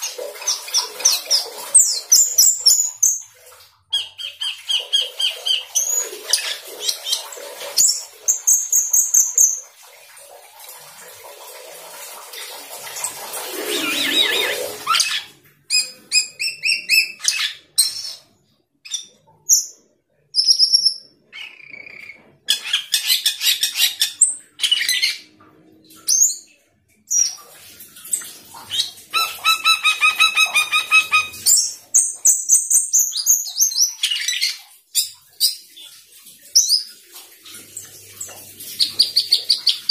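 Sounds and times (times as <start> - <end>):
starling singing: 28.8 - 31.8.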